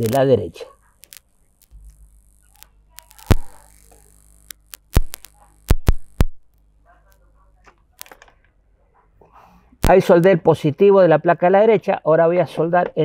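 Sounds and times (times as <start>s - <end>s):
steady low hum: 0.0s - 8.0s
faint high hiss: 0.0s - 8.1s
tools and wire clicking: 1.0s - 1.2s.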